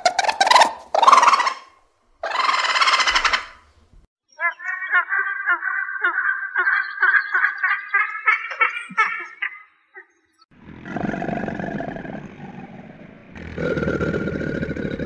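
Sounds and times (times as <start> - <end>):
eagle yelping calls: 0.0 - 3.6, 4.3 - 10.2
large animal roaring: 10.5 - 15.0.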